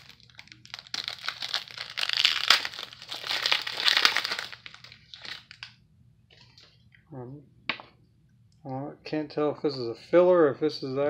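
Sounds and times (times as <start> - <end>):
foil wrapper crinkling and tearing: 0.0 - 5.7.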